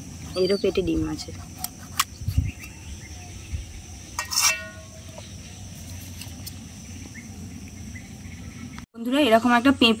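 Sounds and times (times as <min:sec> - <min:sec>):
high insect drone: 0:00.0 - 0:10.0
metal clink on steel bowl: 0:04.2 - 0:05.0.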